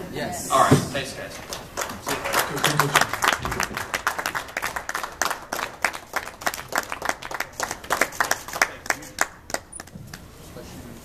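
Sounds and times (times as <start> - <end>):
audience applause: 1.4 - 10.0.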